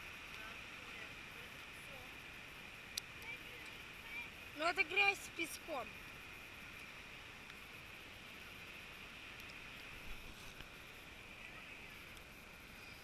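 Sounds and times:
wind: 0.0s - 13.0s.

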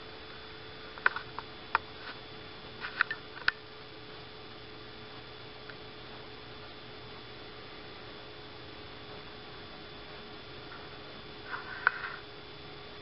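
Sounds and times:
faint constant hum: 0.0s - 13.0s.

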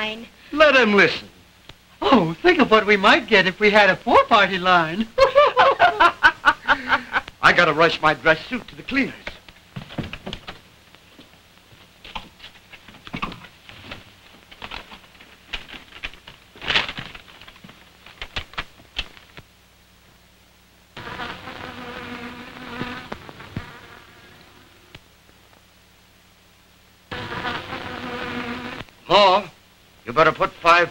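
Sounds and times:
paper bag rustling and crackling: 12.4s - 19.4s
insect-like buzzing: 21.0s - 25.0s, 27.1s - 29.0s.

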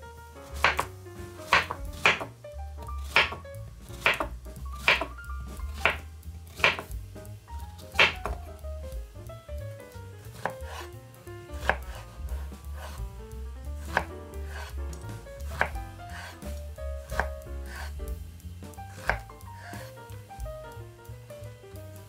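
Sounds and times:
knife chopping on wooden board: 0.5s - 0.9s, 1.5s - 2.3s, 3.0s - 6.9s, 7.8s - 8.4s, 10.3s - 10.9s, 11.6s - 13.0s, 13.8s - 18.0s, 18.9s - 19.9s.

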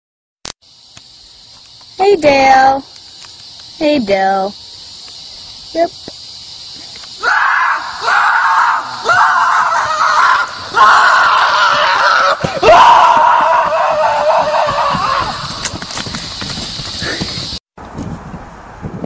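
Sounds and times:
person screaming: 7.2s - 15.6s.

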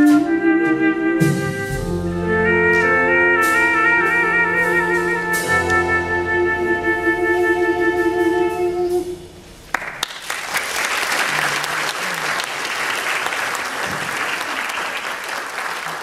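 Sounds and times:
audience applause: 9.7s - 16.0s.

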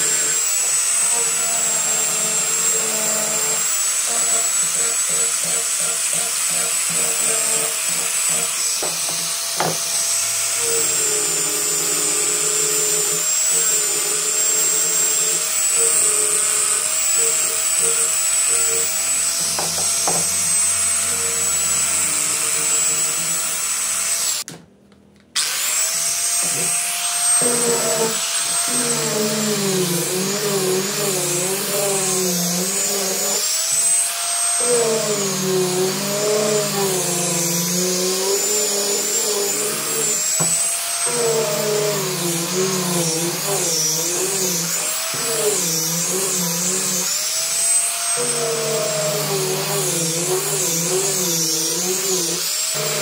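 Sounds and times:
angle grinder sanding wood: 0.0s - 24.5s, 25.4s - 53.0s.

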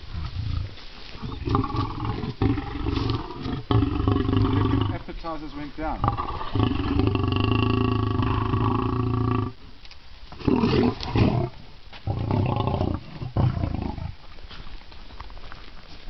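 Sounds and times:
lions growling: 0.0s - 5.1s, 6.0s - 9.6s, 10.3s - 14.2s.

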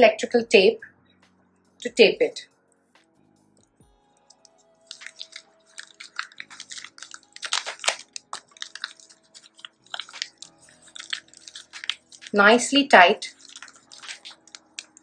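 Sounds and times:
plastic bag crinkling: 4.2s - 12.4s, 13.2s - 15.0s
tape peeling off roll: 4.3s - 12.4s.

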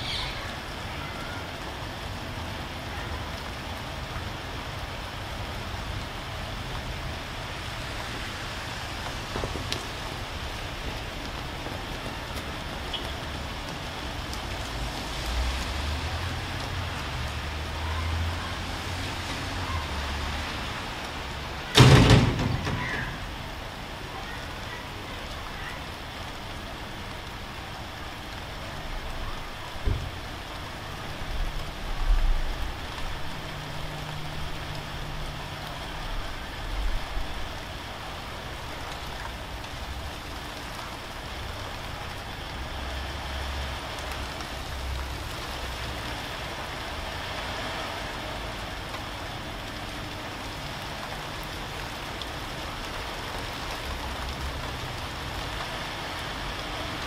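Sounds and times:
rain on corrugated roof: 0.0s - 57.0s
thump: 21.8s - 23.2s, 29.8s - 30.1s.

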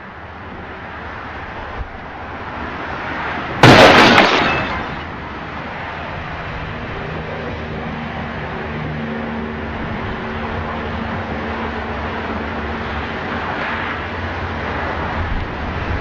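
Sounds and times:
traffic noise: 0.0s - 16.0s
glass breaking: 3.6s - 5.1s
vehicle crash impact: 3.6s - 5.2s.

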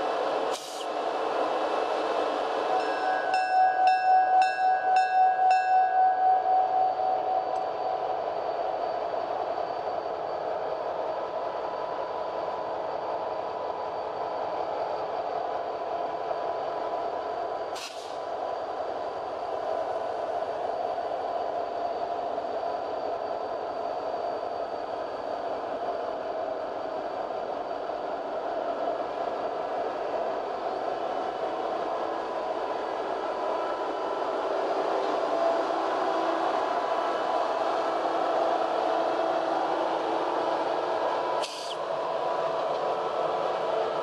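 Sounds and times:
train rolling along track: 0.0s - 44.0s.

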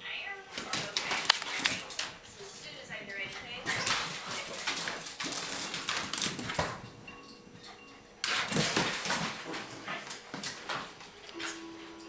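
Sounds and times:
dogs scuffling: 0.5s - 12.0s
claws clicking on hardwood floor: 0.6s - 2.2s
dogs play-growling: 7.7s - 10.9s.

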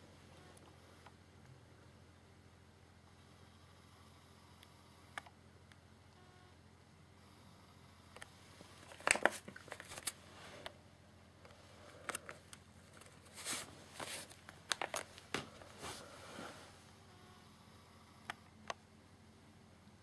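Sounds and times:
plastic shrink-wrap crinkling: 8.8s - 10.2s, 11.9s - 15.3s.

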